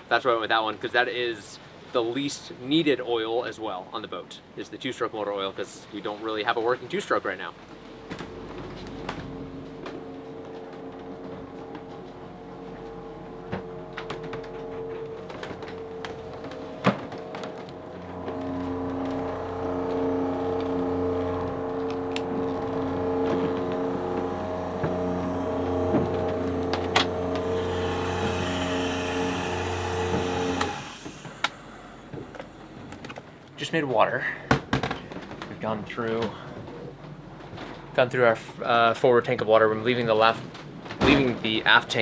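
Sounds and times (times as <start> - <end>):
generator humming: 7.6 - 34.0.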